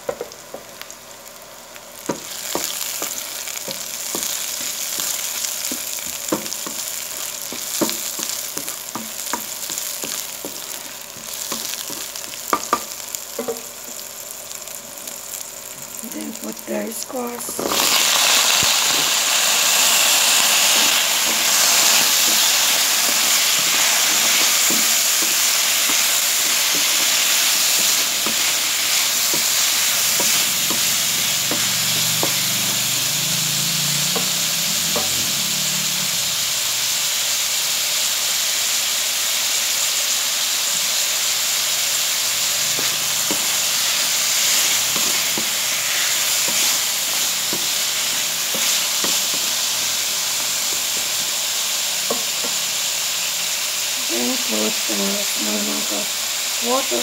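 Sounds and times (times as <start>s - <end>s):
food sizzling in hot oil: 0.0s - 57.0s
wooden spatula scraping a pan: 42.7s - 49.9s.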